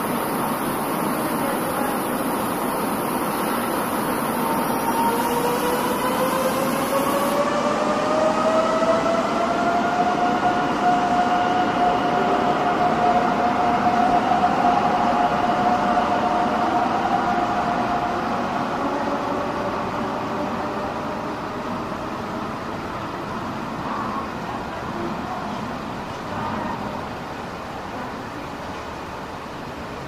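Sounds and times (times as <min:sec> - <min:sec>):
electric train motors whining: 0:00.0 - 0:07.8.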